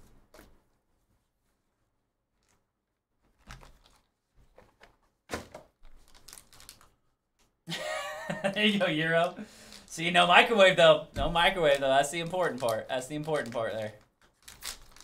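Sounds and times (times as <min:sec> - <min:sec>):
foil pack crinkling: 0:05.9 - 0:07.0, 0:11.4 - 0:15.0.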